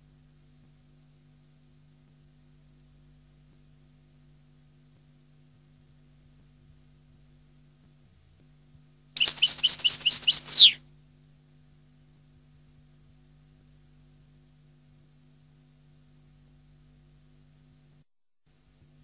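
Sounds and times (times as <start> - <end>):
goldfinch singing: 9.2 - 10.8.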